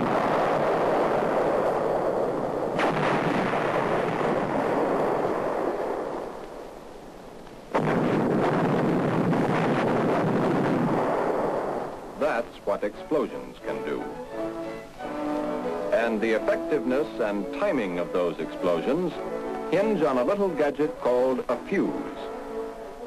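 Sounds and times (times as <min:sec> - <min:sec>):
explosions with dense roar: 0:00.0 - 0:06.4, 0:07.7 - 0:12.3
sharp crack: 0:00.0 - 0:14.1.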